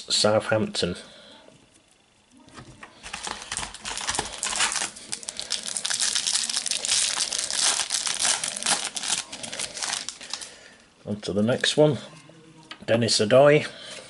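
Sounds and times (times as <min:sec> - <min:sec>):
foil wrapper crinkling and tearing: 0:02.9 - 0:10.6.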